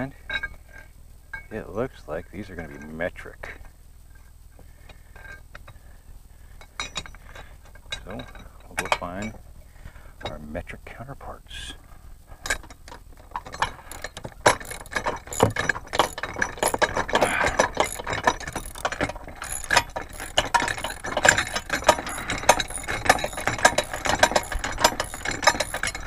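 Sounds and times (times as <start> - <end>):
metal clinks: 6.6 - 9.4, 12.4 - 26.0
ratcheting wrench clicking: 13.3 - 26.0.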